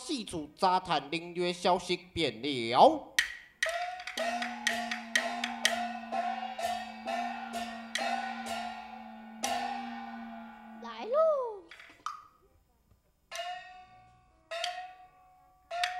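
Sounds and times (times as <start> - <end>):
wood block percussion beat: 3.0 - 10.4
held low note: 4.2 - 11.1.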